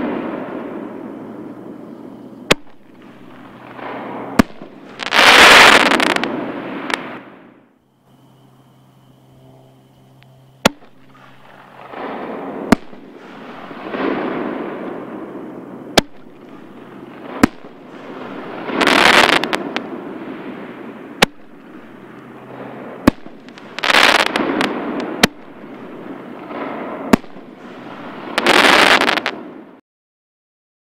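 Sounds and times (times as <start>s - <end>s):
loud hissing bursts: 2.0s - 7.2s, 16.0s - 29.3s.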